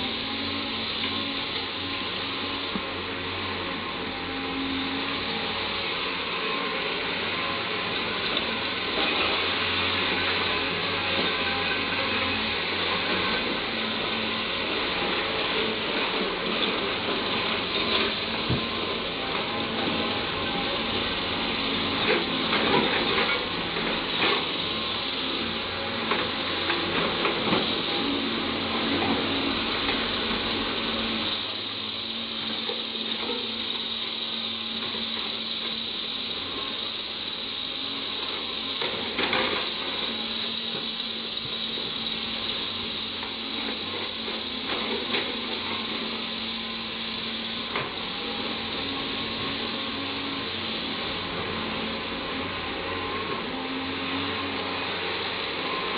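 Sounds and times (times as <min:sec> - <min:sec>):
excavator engine and hydraulics: 0:00.0 - 0:55.9
knocks and clatters of coal: 0:14.6 - 0:52.1.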